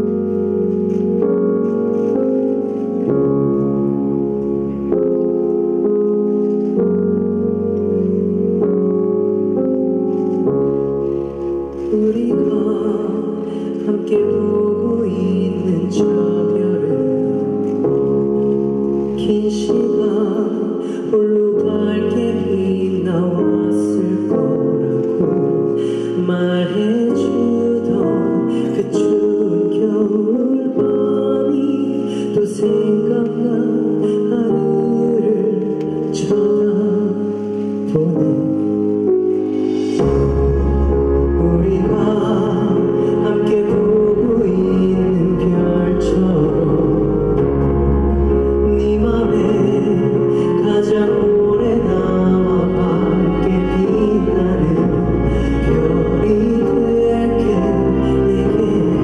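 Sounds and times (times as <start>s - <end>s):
soft instrumental accompaniment: 0.0s - 59.0s
man singing a slow ballad: 11.8s - 17.8s, 19.0s - 59.0s.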